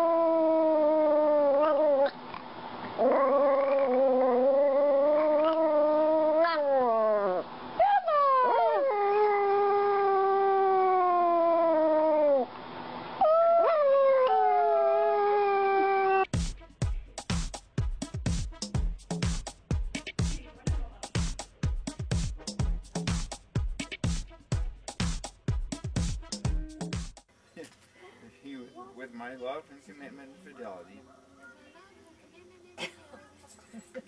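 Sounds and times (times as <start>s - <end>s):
dog howling: 0.0s - 2.2s, 3.0s - 12.5s, 13.2s - 16.3s
dog yelping: 1.4s - 2.2s, 3.0s - 9.4s.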